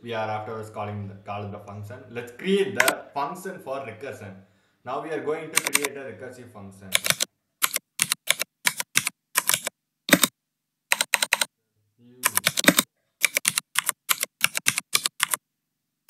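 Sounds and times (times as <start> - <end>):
computer keyboard typing: 5.5 - 5.9, 6.9 - 10.3, 10.9 - 11.5, 12.2 - 15.4.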